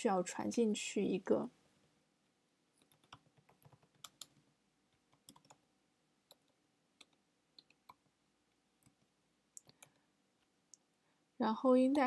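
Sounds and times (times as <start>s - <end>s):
keyboard typing: 2.8s - 5.6s, 6.3s - 8.1s, 8.8s - 10.5s.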